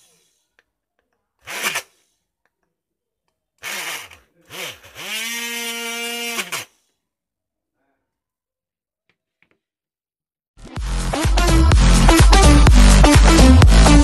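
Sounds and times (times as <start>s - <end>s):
mini drill motor whine: 1.4s - 2.0s, 3.6s - 6.8s.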